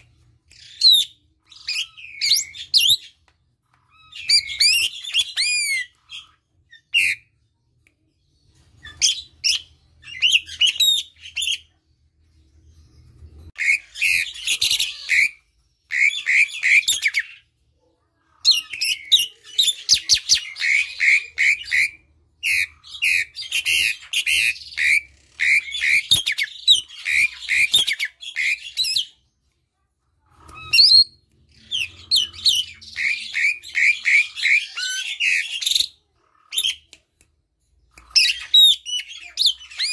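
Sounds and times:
starling singing: 0:00.0 - 0:07.3, 0:13.2 - 0:17.4, 0:18.3 - 0:29.3, 0:30.3 - 0:36.9, 0:37.9 - 0:39.9.

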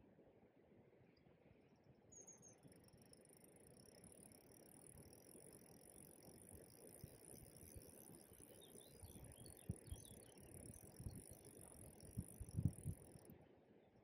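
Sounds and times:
high-pitched insect drone: 0:02.2 - 0:13.3.

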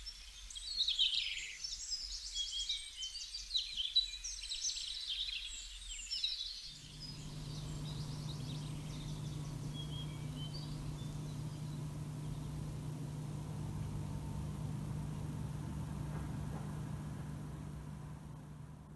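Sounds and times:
recorded birdsong: 0:00.0 - 0:18.9
steady low hum: 0:06.8 - 0:18.9
vinyl surface hiss: 0:06.8 - 0:18.9.

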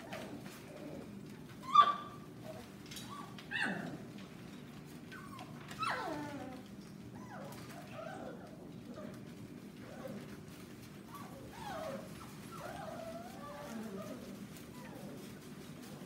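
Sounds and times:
puppies crying: 0:00.0 - 0:04.1, 0:05.1 - 0:09.2, 0:09.8 - 0:15.4
puppies yipping: 0:01.6 - 0:03.9, 0:09.8 - 0:16.0.

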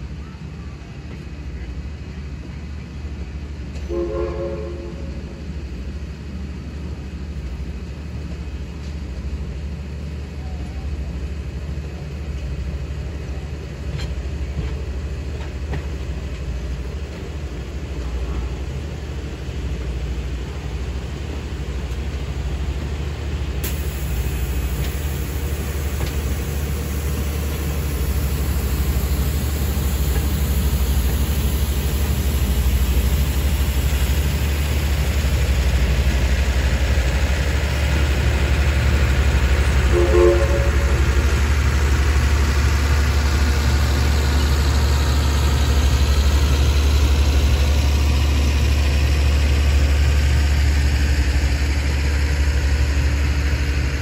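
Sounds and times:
train rumbling: 0:00.0 - 0:54.0
brief pitched tone: 0:40.0 - 0:41.2.

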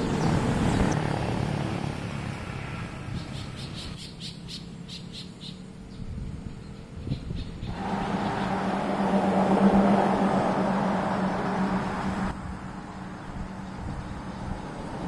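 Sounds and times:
small bird chirping: 0:03.1 - 0:07.8.

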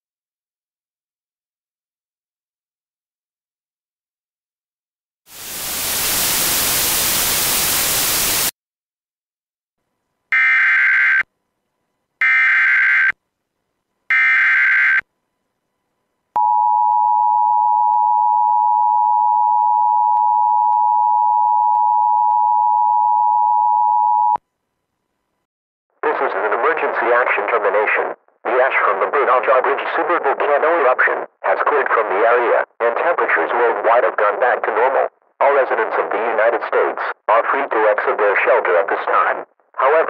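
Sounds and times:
static hiss: 0:05.3 - 0:08.5.

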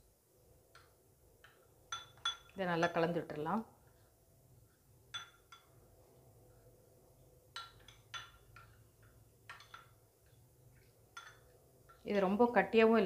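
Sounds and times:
spoon clinking against glass: 0:01.9 - 0:03.0, 0:05.1 - 0:05.7, 0:11.1 - 0:12.0
spoon stirring batter: 0:07.5 - 0:12.2.

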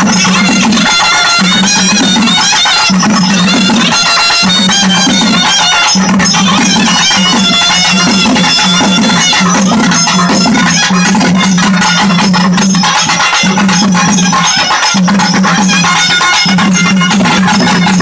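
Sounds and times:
double-reed pipe melody: 0:00.0 - 0:12.2
barrel drums beating: 0:00.0 - 0:18.0.

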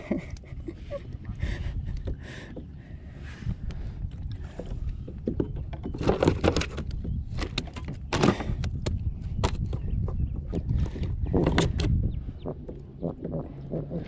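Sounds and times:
steady low rumble: 0:00.0 - 0:05.7, 0:08.0 - 0:14.0
knocks and thumps on kayak hull: 0:04.5 - 0:12.0.

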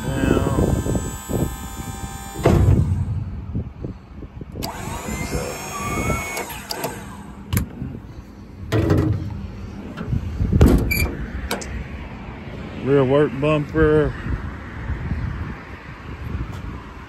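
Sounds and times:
rumbling handling noise: 0:00.0 - 0:12.2
sharp clicks: 0:06.2 - 0:07.7.

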